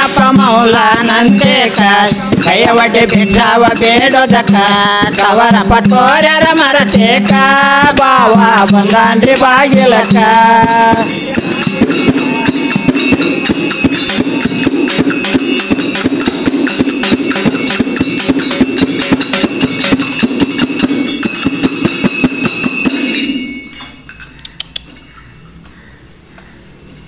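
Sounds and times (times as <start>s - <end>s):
frame drum beaten with stick: 0.0s - 23.3s
small hand cymbals: 0.0s - 27.0s
faint clicks: 24.3s - 25.0s.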